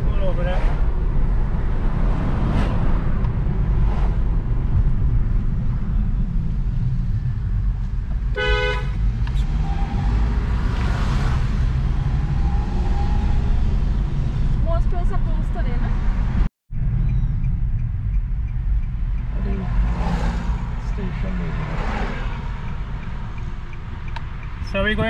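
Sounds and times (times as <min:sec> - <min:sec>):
car driving rumble: 0:00.0 - 0:25.0
car horn toot: 0:08.3 - 0:09.0.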